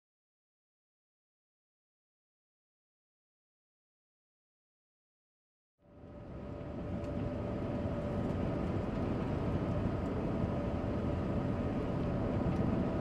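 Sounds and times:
faint hum: 0:05.8 - 0:13.0.

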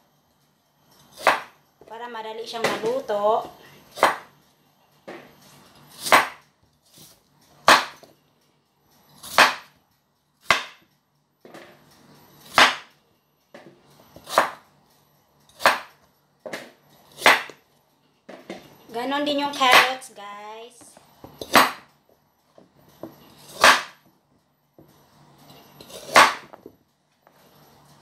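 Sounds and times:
knife cutting through potato: 0:05.8 - 0:08.1, 0:14.2 - 0:14.6, 0:23.3 - 0:24.0, 0:25.8 - 0:26.5.

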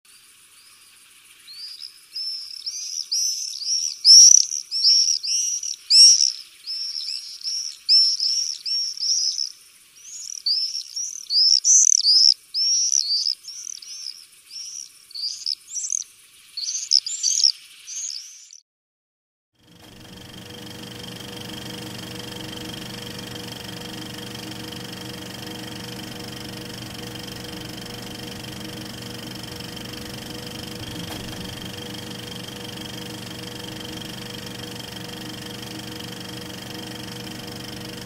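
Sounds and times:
swifts screaming: 0:01.6 - 0:16.0.

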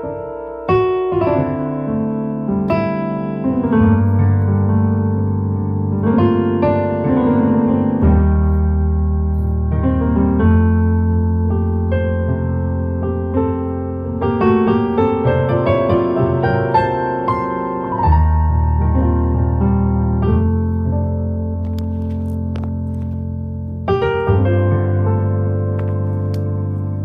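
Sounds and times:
electronic keyboard piano chords: 0:00.0 - 0:27.0.

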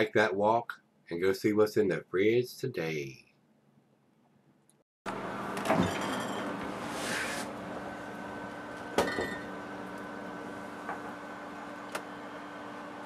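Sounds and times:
refrigerator hum: 0:05.1 - 0:13.0
glass bottles clinking: 0:05.7 - 0:06.5, 0:09.0 - 0:09.5.

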